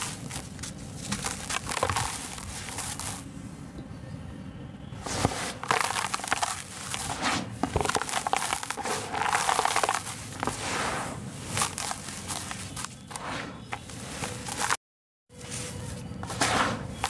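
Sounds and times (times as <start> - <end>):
powder crumbled between hands: 0.0 - 3.2, 5.2 - 10.6, 11.5 - 13.0.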